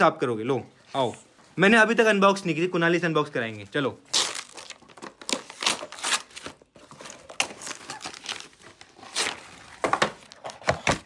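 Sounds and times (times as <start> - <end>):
paper wrapping tearing: 4.1 - 10.4.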